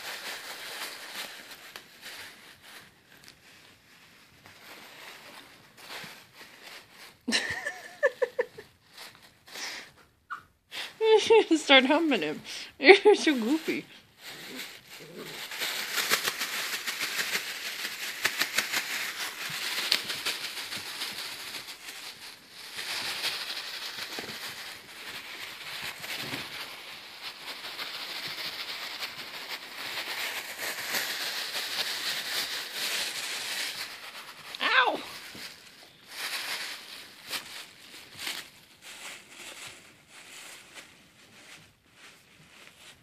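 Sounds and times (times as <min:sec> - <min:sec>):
plastic bag crinkling: 0:00.0 - 0:09.9, 0:11.2 - 0:43.0.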